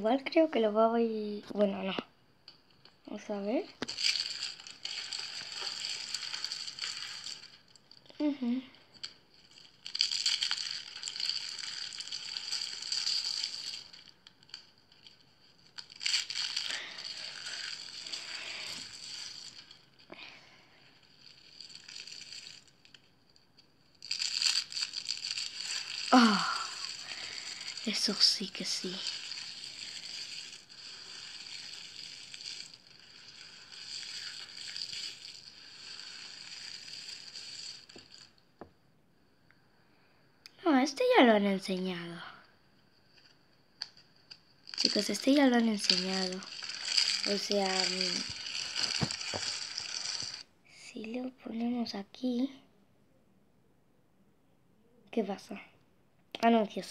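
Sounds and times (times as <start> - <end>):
soap shavings crunching in hands: 3.8 - 8.0, 9.0 - 20.1, 20.8 - 23.1, 23.9 - 38.4, 43.8 - 50.4.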